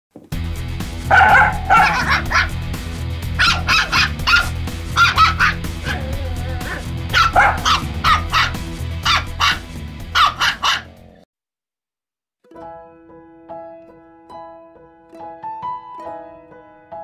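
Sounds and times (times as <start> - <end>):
background music: 0.3 - 11.2, 12.5 - 17.0
piano: 0.4 - 10.6, 12.5 - 17.0
puppy yapping: 1.1 - 2.6, 3.4 - 11.2.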